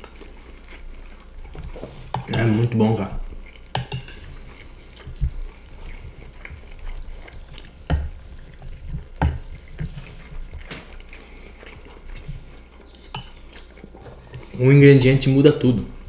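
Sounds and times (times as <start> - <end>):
spoons scraping and clinking on plates: 1.7 - 5.2, 5.8 - 15.3
wet mouth sounds: 3.3 - 14.6.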